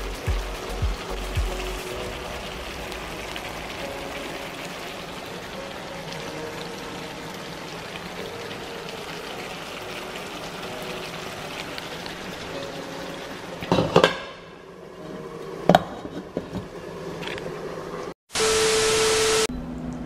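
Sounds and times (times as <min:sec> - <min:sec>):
fish sizzling in a frying pan: 0:00.0 - 0:14.0.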